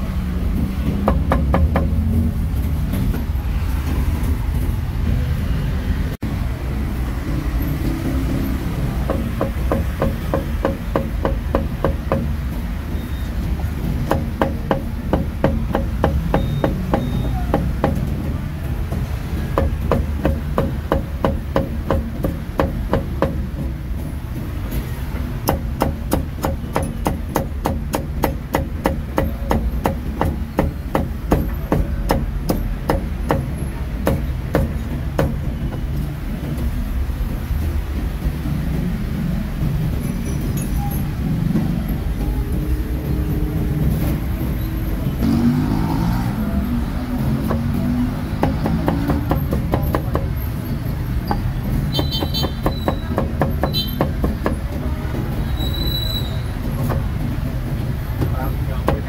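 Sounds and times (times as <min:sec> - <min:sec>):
street traffic hum: 0:00.0 - 0:59.0
cleaver chopping on a block: 0:25.4 - 0:35.4, 0:47.3 - 0:50.4, 0:52.0 - 0:54.6.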